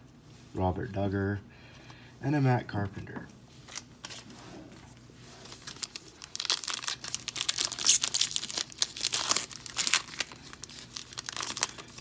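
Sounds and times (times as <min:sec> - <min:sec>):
plastic wrapper tearing and crinkling: 0:05.5 - 0:12.0.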